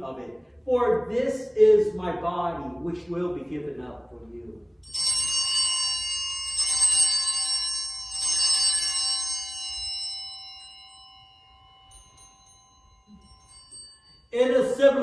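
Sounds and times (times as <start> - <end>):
altar bells ringing: 4.8 - 15.0.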